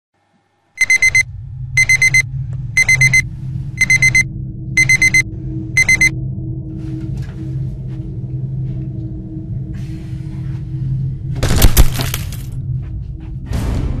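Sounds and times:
low hum: 0.2s - 14.0s
alarm clock beeping: 0.8s - 6.2s.

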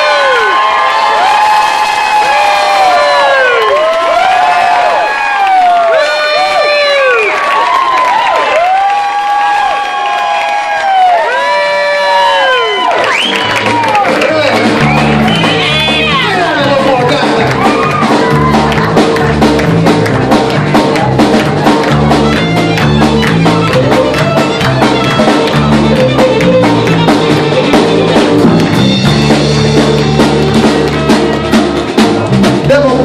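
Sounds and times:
drum kit: 13.2s - 33.0s
electric bass guitar: 13.3s - 33.0s
fiddle: 14.3s - 32.0s.

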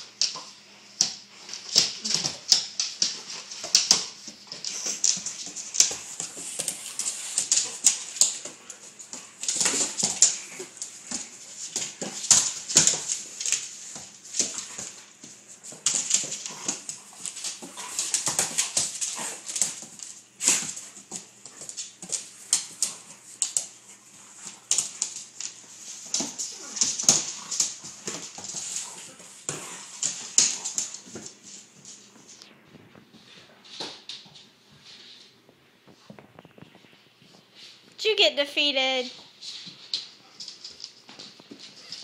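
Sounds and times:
dogs growling and vocalizing: 26.0s - 31.0s.

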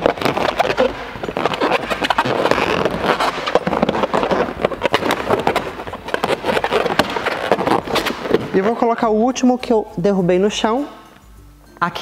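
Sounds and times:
balloons crackling and squeaking: 0.0s - 9.5s.

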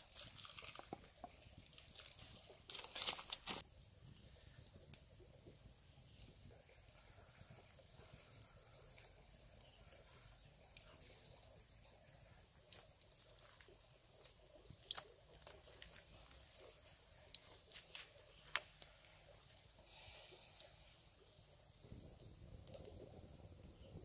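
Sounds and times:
campfire embers crackling: 0.0s - 24.0s.

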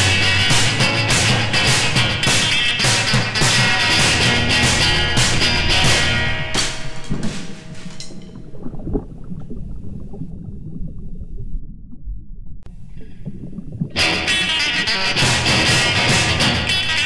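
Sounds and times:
rock music: 0.0s - 8.1s, 14.0s - 17.0s
underwater gurgling and bubbling: 4.4s - 15.1s.

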